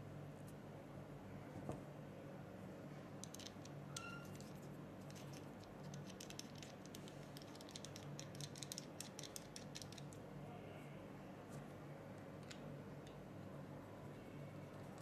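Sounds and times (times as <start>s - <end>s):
metal threads clicking and scraping: 3.2s - 10.2s.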